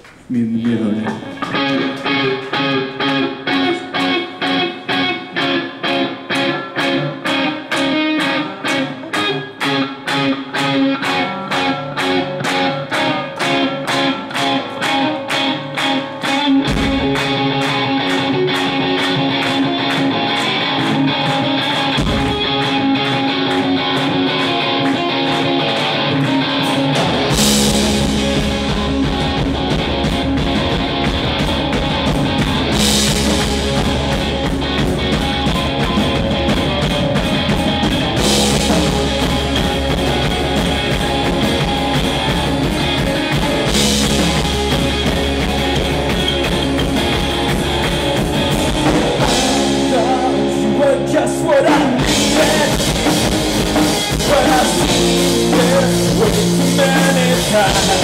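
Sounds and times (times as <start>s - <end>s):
bass guitar: 0.6s - 58.0s
electric guitar riff: 0.6s - 58.0s
drum kit with cymbals: 26.3s - 50.8s, 51.6s - 58.0s.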